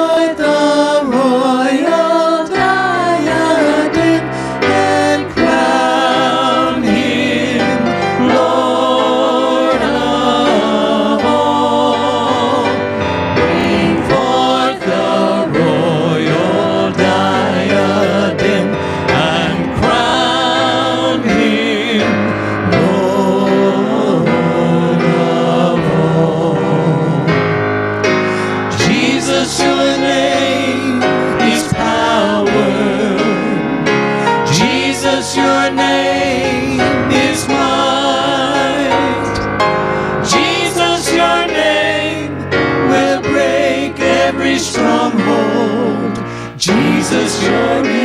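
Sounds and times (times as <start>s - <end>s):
group singing gospel in harmony: 0.0s - 48.0s
instrumental accompaniment: 0.0s - 48.0s.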